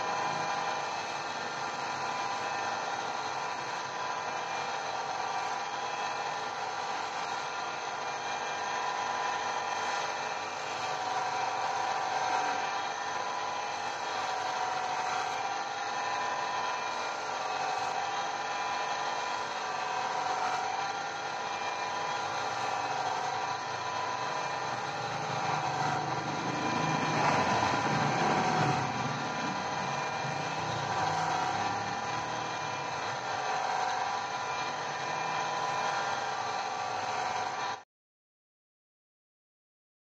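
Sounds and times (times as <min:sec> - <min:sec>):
cutting machine motor whine: 0:00.0 - 0:37.8
stone rasping on grinding wheel: 0:24.0 - 0:35.9.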